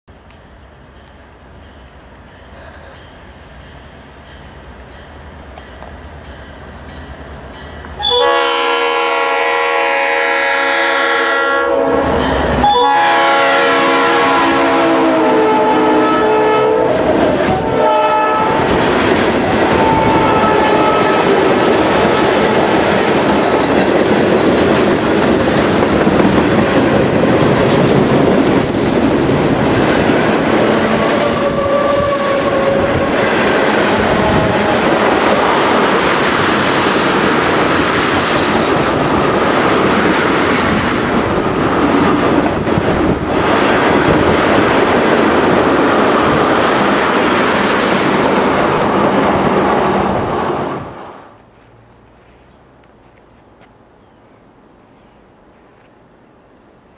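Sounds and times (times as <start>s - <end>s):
train wheels clattering over rails: 18.6s - 49.6s
wheel squealing on rail: 19.6s - 24.7s, 30.8s - 35.2s.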